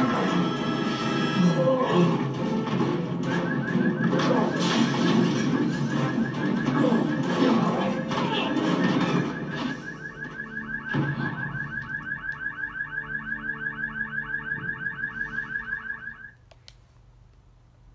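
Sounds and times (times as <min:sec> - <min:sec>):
loud noise: 0:00.0 - 0:11.9
car alarm warbling: 0:02.3 - 0:16.4.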